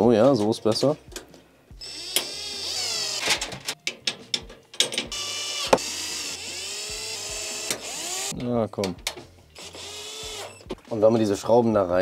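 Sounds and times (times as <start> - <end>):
drill motor whining: 1.8 - 3.4, 5.1 - 8.3, 9.6 - 10.7.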